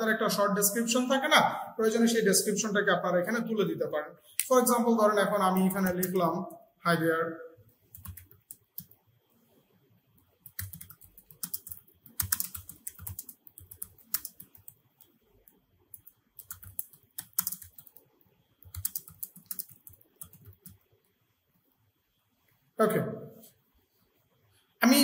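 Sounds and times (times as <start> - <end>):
computer keyboard typing: 5.4 - 6.3, 7.9 - 9.0, 10.4 - 20.9.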